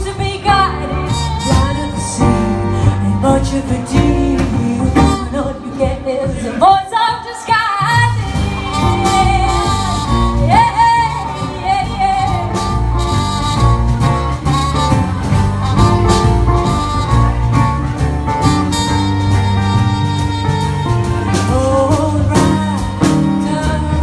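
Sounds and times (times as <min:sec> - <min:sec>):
folk band playing: 0:00.0 - 0:24.0.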